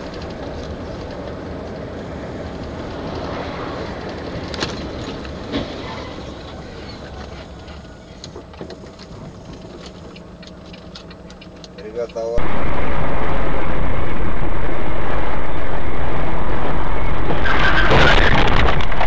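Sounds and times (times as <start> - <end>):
engine and tyre noise on wet road: 0.0 - 19.0.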